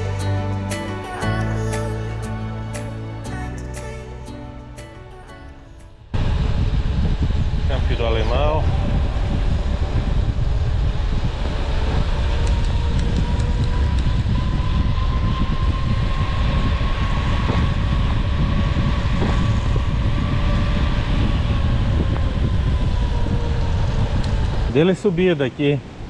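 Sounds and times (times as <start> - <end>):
wind buffeting microphone: 6.1 - 26.0.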